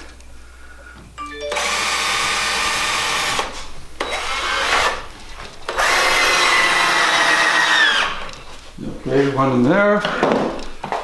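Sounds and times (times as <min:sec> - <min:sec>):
electric drill whining: 0:01.3 - 0:05.1, 0:05.7 - 0:08.3.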